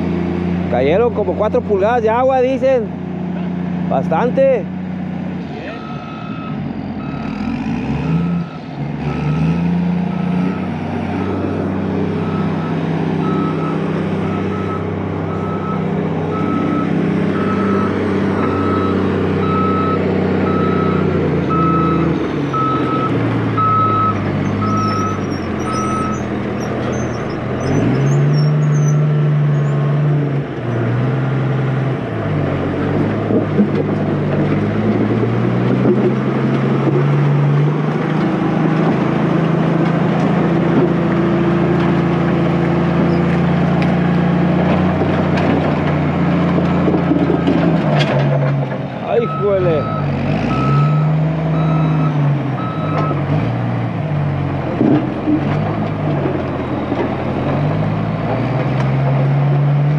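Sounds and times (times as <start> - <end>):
diesel engine revving under load: 0.0 - 59.9
reversing alarm beeping: 5.7 - 9.6, 10.4 - 26.3, 49.1 - 53.2.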